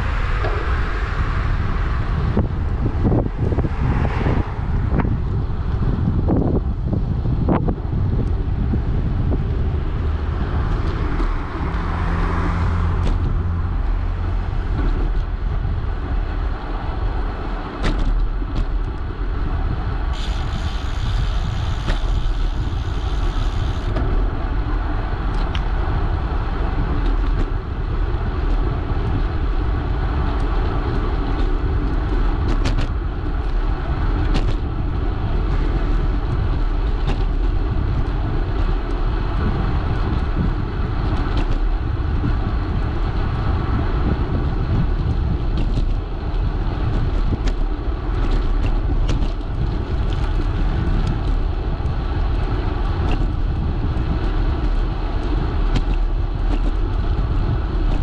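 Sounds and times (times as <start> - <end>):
wind and road noise: 0.0 - 58.0
high hiss: 20.2 - 23.9.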